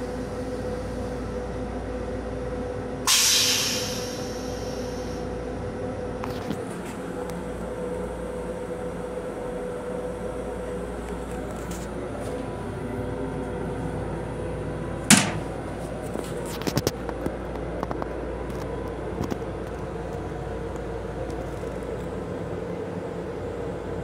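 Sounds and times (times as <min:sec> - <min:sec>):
railcar hum: 0:00.0 - 0:24.0
plastic toilet lid clapping shut: 0:15.1 - 0:15.5.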